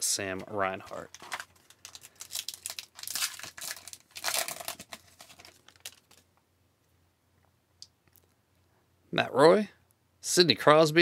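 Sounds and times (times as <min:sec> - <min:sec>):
wrapper tearing and crinkling: 0:00.9 - 0:06.2.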